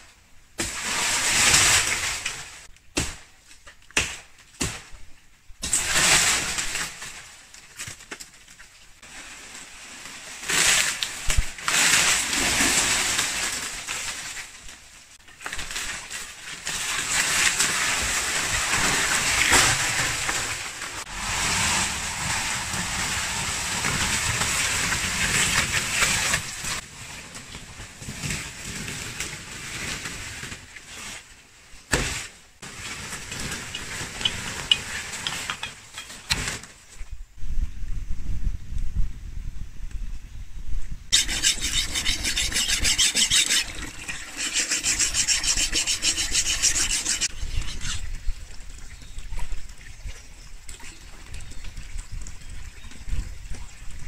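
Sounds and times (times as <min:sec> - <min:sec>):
palm fronds rustling and crunching: 0:00.0 - 0:04.9, 0:05.6 - 0:37.2.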